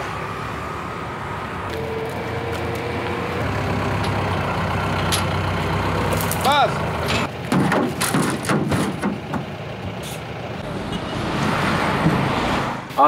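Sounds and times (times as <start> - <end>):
truck engine idling: 0.0 - 12.4.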